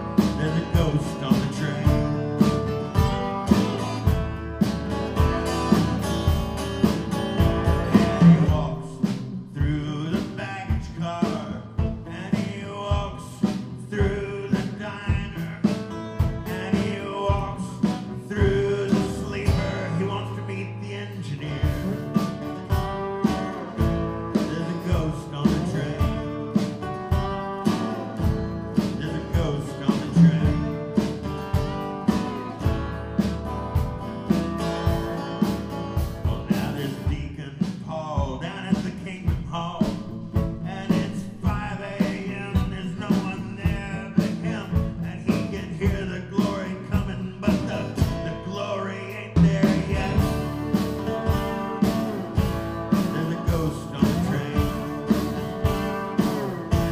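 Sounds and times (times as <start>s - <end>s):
acoustic guitars strumming: 0.0s - 56.9s
lap steel guitar gliding lead: 50.1s - 56.9s.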